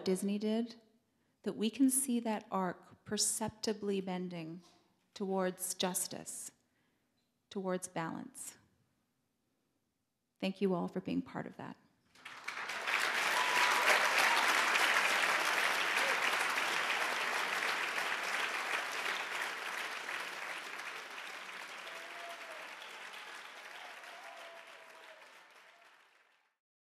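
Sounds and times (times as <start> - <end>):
audience applauding: 12.2 - 26.5.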